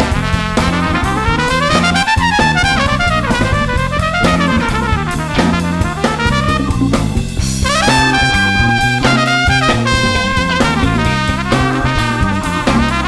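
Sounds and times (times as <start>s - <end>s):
bass guitar: 0.0s - 13.0s
drum kit groove: 0.0s - 13.0s
trumpet lead line: 0.0s - 13.0s.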